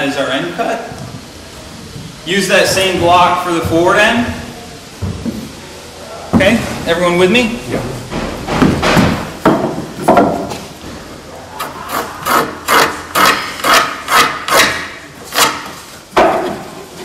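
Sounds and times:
hand tool rasping on wood: 11.6s - 15.7s.

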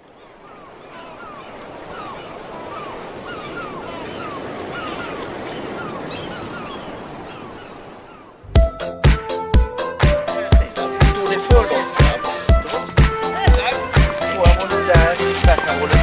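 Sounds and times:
sea surf washing: 0.0s - 8.4s, 10.0s - 16.0s
birds calling: 0.0s - 16.0s.

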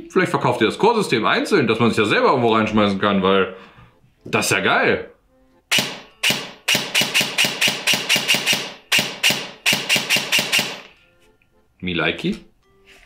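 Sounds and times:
airsoft rifle shots clacking: 5.7s - 10.9s.

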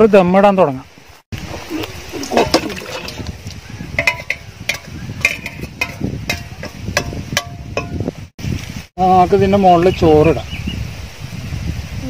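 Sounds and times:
metal utensils clinking on pots: 1.7s - 3.3s, 3.9s - 8.1s.

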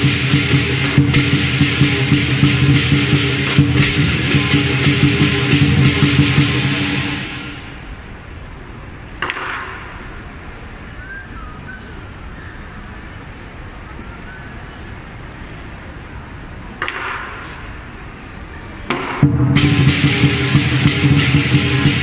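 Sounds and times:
cymbal clashes: 0.0s - 8.1s, 18.9s - 22.0s
drum and cymbal ensemble: 0.0s - 10.9s, 16.8s - 22.0s
crowd murmur: 0.0s - 22.0s.

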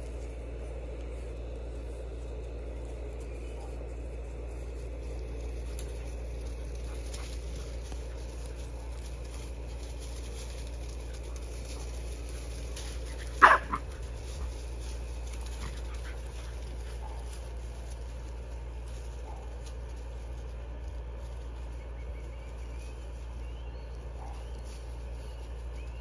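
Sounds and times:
paws rustling dry leaves: 0.0s - 26.0s
puppy yelping: 13.1s - 14.0s.

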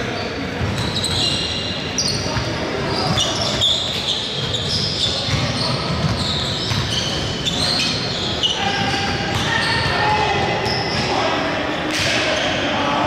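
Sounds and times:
shoes squeaking on wooden floor: 0.8s - 10.0s.

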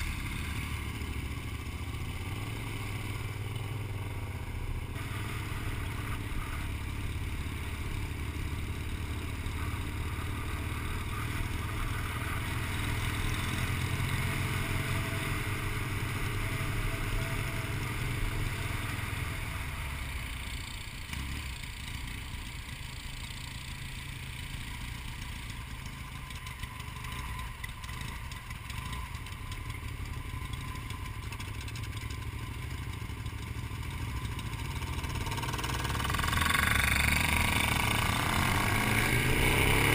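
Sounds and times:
motorcycle engine running: 0.0s - 39.9s
road noise: 0.0s - 39.9s.

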